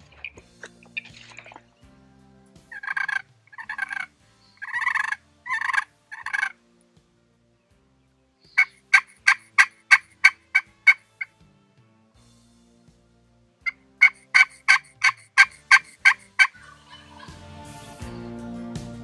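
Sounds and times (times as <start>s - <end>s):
turkey call hen yelps: 2.7s - 6.6s, 8.5s - 11.3s, 14.0s - 17.4s.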